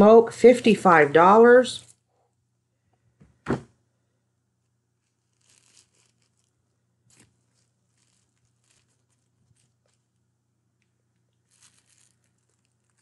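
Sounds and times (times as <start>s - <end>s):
plastic wrapper crinkling: 5.0s - 10.2s, 11.2s - 13.0s.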